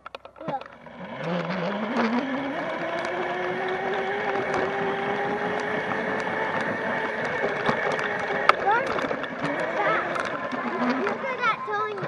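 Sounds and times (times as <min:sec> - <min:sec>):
dirt bike motor running: 0:00.0 - 0:12.0.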